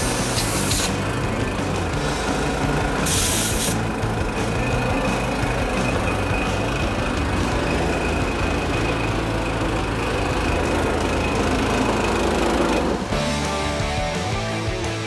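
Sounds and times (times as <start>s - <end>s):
blowtorch hissing roar: 0.0s - 6.3s
music: 0.0s - 15.0s.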